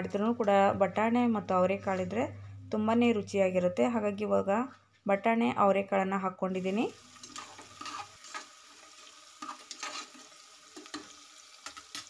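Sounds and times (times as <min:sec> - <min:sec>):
vegetables sizzling in oil: 0:06.5 - 0:12.0
spoon scraping against pot: 0:07.2 - 0:08.5, 0:09.4 - 0:11.1.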